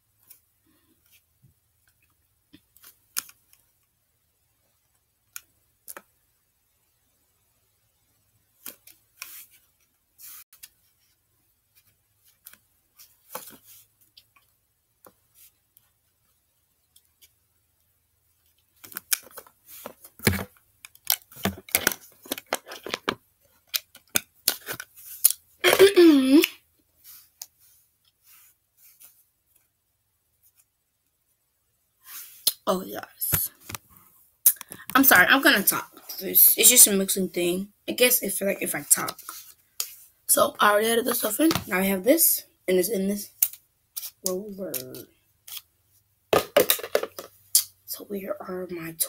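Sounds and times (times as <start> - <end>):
plastic container clicks and crinkles: 18.8 - 24.9.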